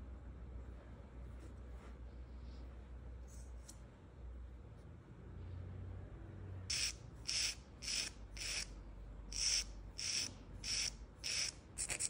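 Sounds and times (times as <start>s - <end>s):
nail file scraping fingernail: 6.7s - 8.7s, 9.3s - 12.0s.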